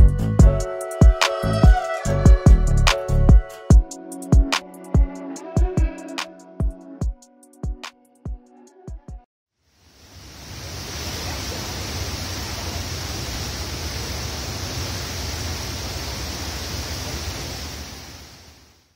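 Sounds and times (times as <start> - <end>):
wind and water rushing: 9.8 - 18.9.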